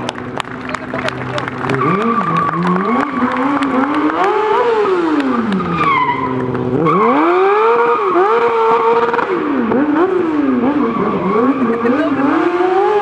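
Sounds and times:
motorcycle engine revving: 0.0 - 13.0.

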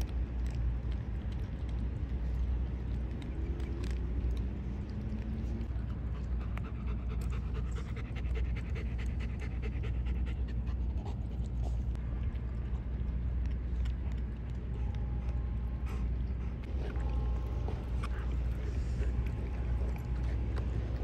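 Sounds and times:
low rumble: 0.0 - 21.0
dog panting: 5.6 - 12.9, 14.4 - 21.0.

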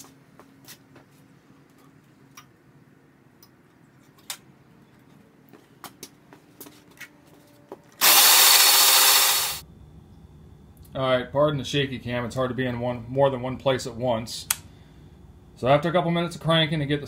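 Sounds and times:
starter motor cranking engine: 8.0 - 9.6.

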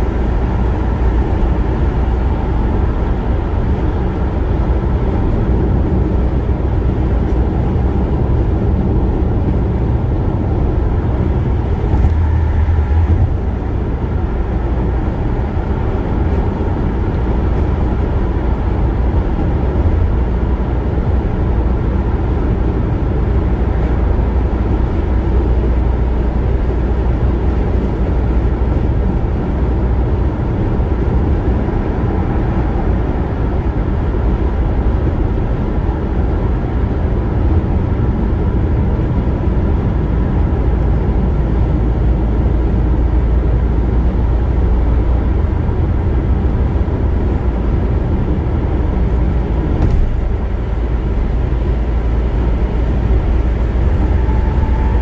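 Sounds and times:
car road and tyre noise: 0.0 - 55.0.

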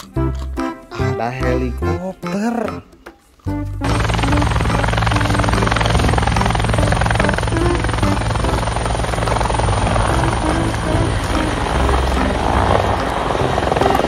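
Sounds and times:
helicopter rotor chopping: 3.8 - 14.0.

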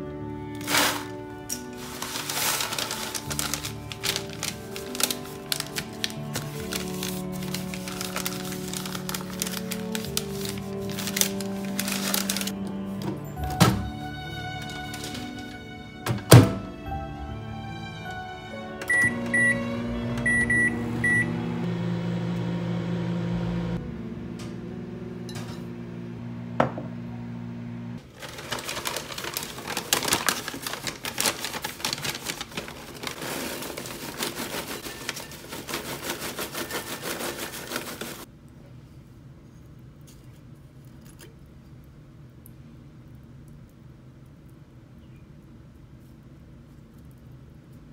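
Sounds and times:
popcorn popping: 0.6 - 13.1
microwave keypad beeping: 18.8 - 21.4
microwave oven humming: 18.8 - 28.0.

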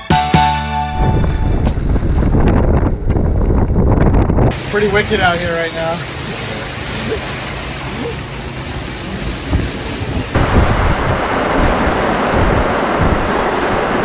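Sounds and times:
gusting wind: 0.9 - 14.0
wind rumbling on microphone: 1.0 - 6.4, 8.7 - 14.0
heavy rain: 4.5 - 14.0.

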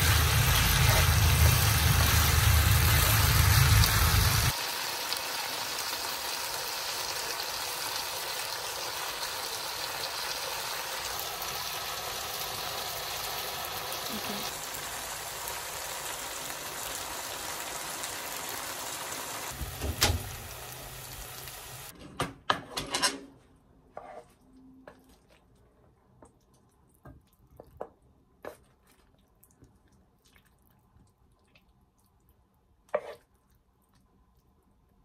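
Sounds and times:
food sizzling in frying pan: 0.0 - 21.9
wooden spatula scraping pan: 23.9 - 25.0, 32.9 - 33.3.

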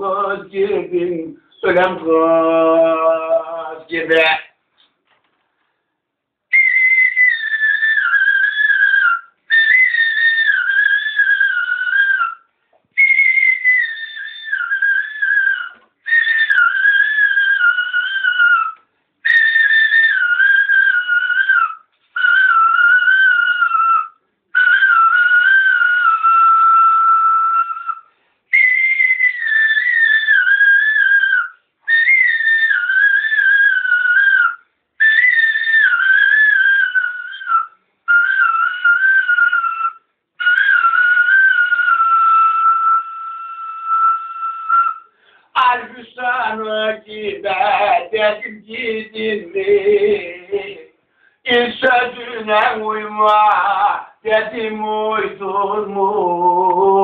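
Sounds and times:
man whistling folk melody: 13.0 - 14.1, 28.5 - 29.4.

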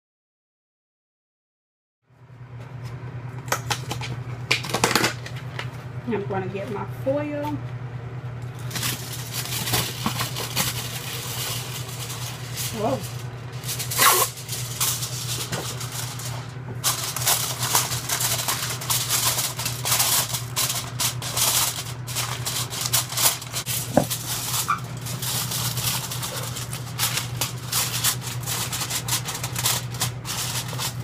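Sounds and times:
aluminium foil crinkling: 3.5 - 5.8, 8.4 - 31.0.

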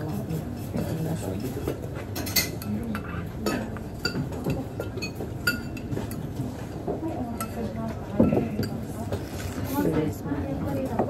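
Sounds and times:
low background murmur: 0.0 - 11.0
metal spoon clinking on bowl: 2.2 - 6.2.

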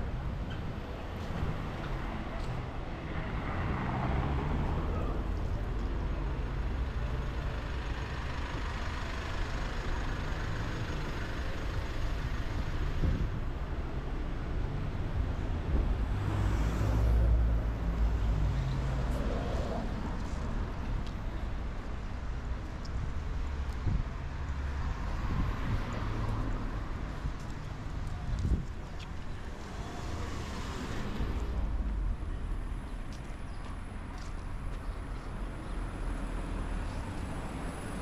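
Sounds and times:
cars driving by: 0.0 - 13.4, 14.5 - 38.0.

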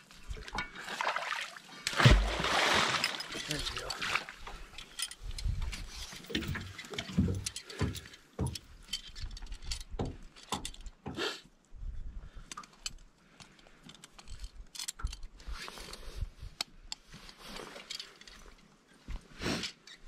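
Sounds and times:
metal trap chain clinking: 2.9 - 4.0.

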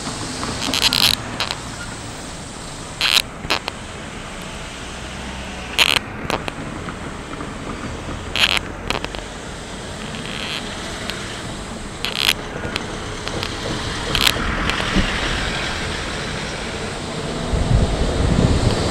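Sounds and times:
sharp clicks: 0.4 - 1.7, 3.0 - 3.8, 5.8 - 9.3, 9.9 - 15.0
wind on microphone: 9.9 - 18.9.

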